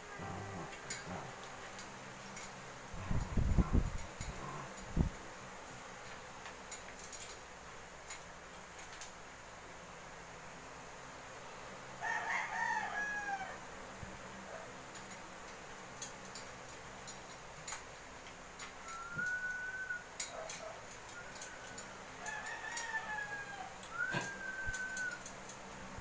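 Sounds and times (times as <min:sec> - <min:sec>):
faint eating clicks: 0:00.2 - 0:05.1
rooster crowing: 0:12.0 - 0:13.7, 0:21.2 - 0:25.3.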